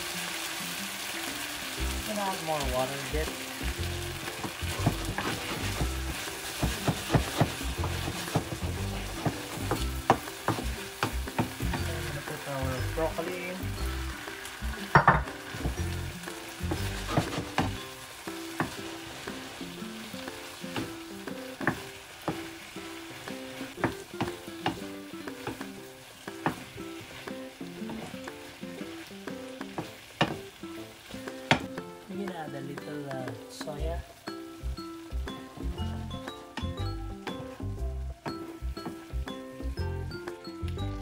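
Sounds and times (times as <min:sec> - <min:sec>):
shrimp sizzling in a frying pan: 0:00.0 - 0:41.0
wooden spoon knocking and scraping pan: 0:04.3 - 0:13.3, 0:14.8 - 0:17.8, 0:18.4 - 0:19.5, 0:23.3 - 0:25.7, 0:29.6 - 0:30.6.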